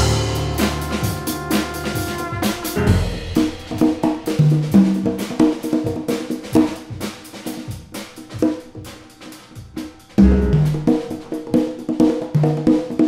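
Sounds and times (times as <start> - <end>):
loud low note: 0.0 - 3.7, 10.2 - 10.9
congas played by hand: 0.0 - 13.0
drum kit: 0.0 - 13.0.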